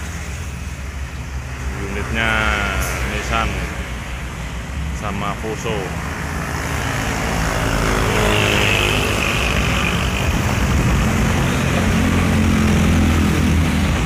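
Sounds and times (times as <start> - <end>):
diesel truck engine running: 0.0 - 14.0.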